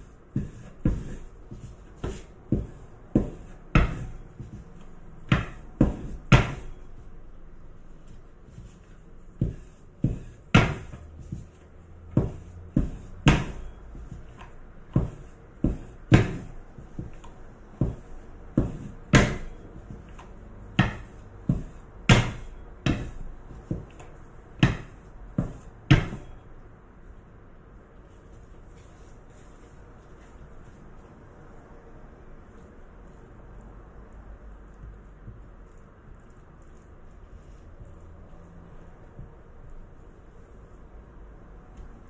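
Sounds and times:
rolling pin knocking on board: 2.0s - 4.6s, 5.3s - 6.8s, 9.4s - 11.5s, 12.1s - 20.2s, 20.8s - 26.3s.

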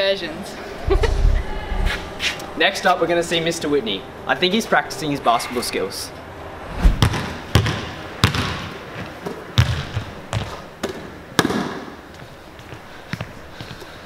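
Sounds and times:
basketball bouncing on wooden floor: 7.0s - 11.6s.

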